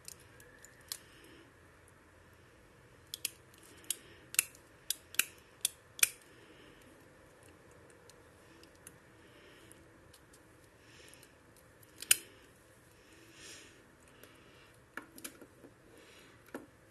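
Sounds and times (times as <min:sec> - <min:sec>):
hard plastic clicks and snaps: 0:03.1 - 0:06.3, 0:11.2 - 0:12.3.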